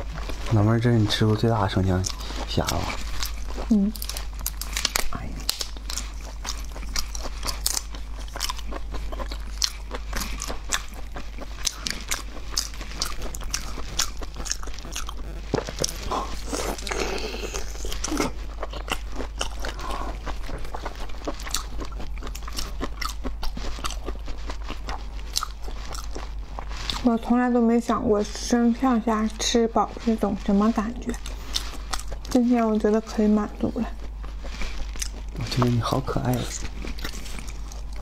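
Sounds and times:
person chewing crunchy food: 0.0 - 38.0
wet mouth sounds: 2.0 - 27.0.

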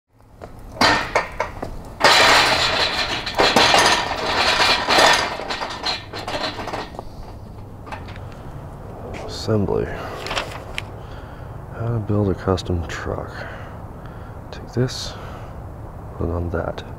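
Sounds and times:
metal cart rolling on asphalt: 0.3 - 11.0
loose metal parts clinking: 0.4 - 8.6.

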